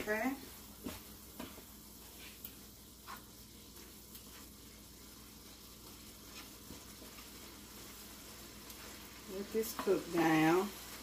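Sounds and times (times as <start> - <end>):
meat sizzling in skillet: 0.0 - 11.0.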